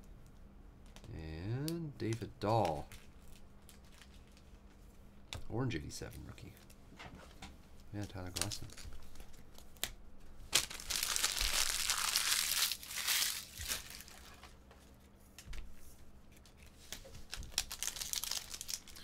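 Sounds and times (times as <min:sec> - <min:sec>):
foil wrapper crinkling: 0:02.5 - 0:04.6, 0:08.0 - 0:09.9, 0:10.5 - 0:14.6, 0:16.6 - 0:19.0.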